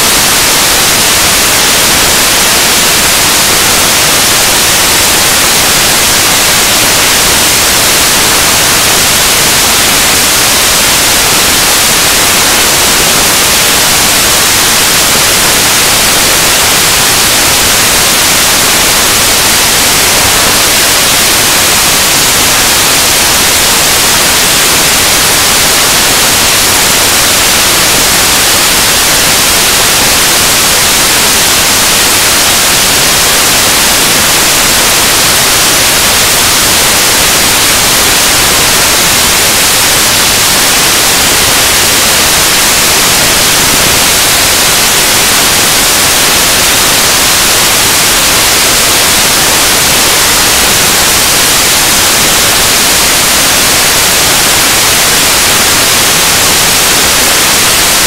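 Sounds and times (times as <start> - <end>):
loud static hiss: 0.0 - 58.0.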